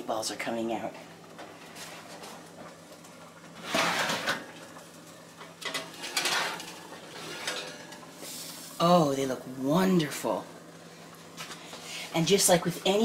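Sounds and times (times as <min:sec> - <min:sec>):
baking sheet sliding over wire rack: 0:03.6 - 0:04.5, 0:05.9 - 0:08.7.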